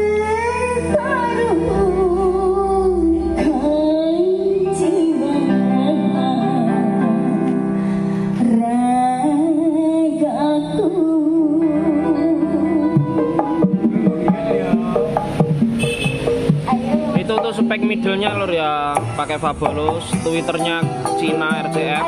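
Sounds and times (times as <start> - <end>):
pop song with woman singing: 0.0 - 13.6.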